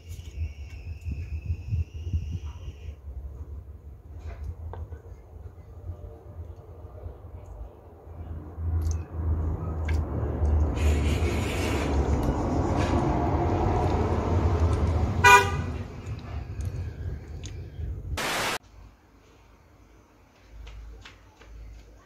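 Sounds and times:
vehicle engine rumble: 0.0s - 18.2s
car horn toot: 15.2s - 15.7s.

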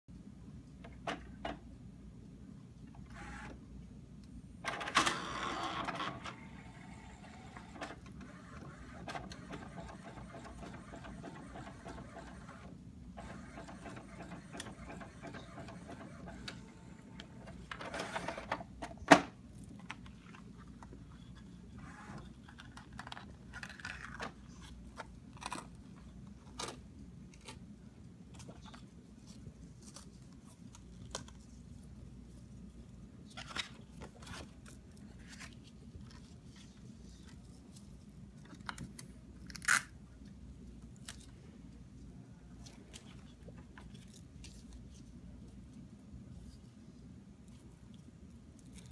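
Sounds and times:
printer whirring: 3.0s - 3.6s, 4.6s - 18.6s, 21.8s - 22.3s
printer sharp clack: 7.7s - 12.6s, 13.2s - 16.7s.

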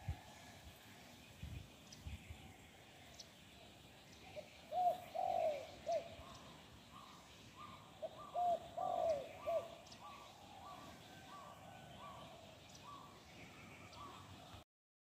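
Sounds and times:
dove cooing: 4.2s - 14.6s.

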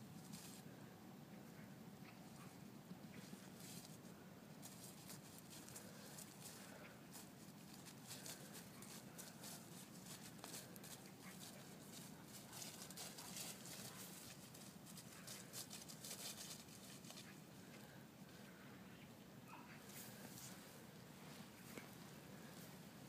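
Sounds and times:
puppy paws on grass and leaves: 0.1s - 0.7s, 2.0s - 18.4s.

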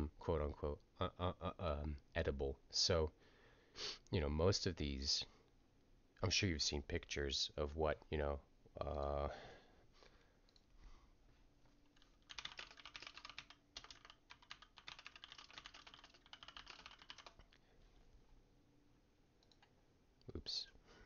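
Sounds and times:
keyboard typing clicks: 12.0s - 17.5s.

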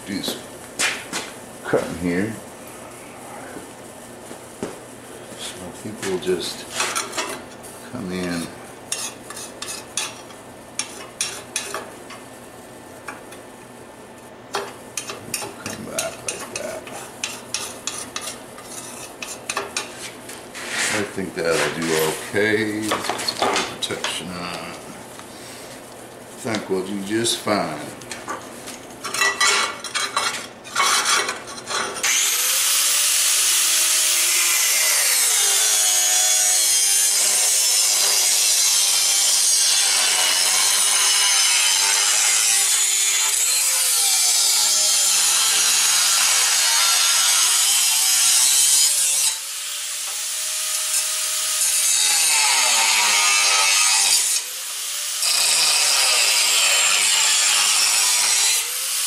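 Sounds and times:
angle grinder cutting steel: 30.8s - 59.0s.

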